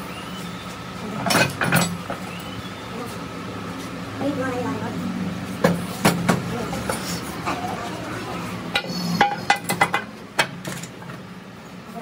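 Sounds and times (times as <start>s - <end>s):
metal tools knocking and clinking: 1.2s - 2.0s, 8.8s - 10.9s.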